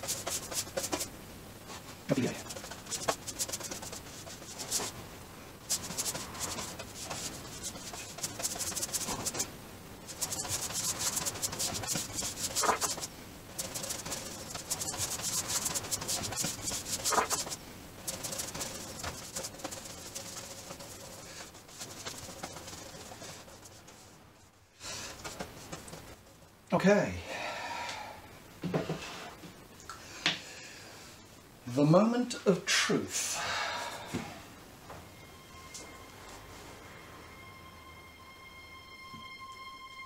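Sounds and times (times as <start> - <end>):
paintbrush scrubbing glue: 0.0 - 1.1, 1.7 - 5.0, 5.6 - 9.5, 10.1 - 24.2.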